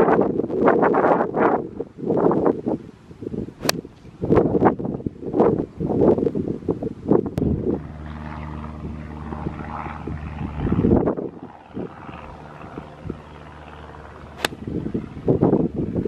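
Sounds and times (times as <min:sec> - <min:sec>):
wind buffeting microphone: 0:00.0 - 0:16.0
golf club striking ball: 0:03.6 - 0:03.9, 0:14.3 - 0:14.7
low engine drone: 0:07.0 - 0:16.0.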